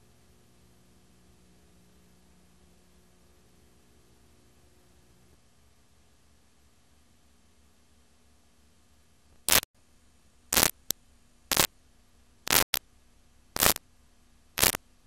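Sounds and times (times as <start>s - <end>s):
faint steady hum: 0.0s - 15.0s
static hiss bursts: 9.4s - 9.7s, 10.5s - 10.9s, 12.5s - 12.8s, 13.6s - 13.8s, 14.6s - 14.8s.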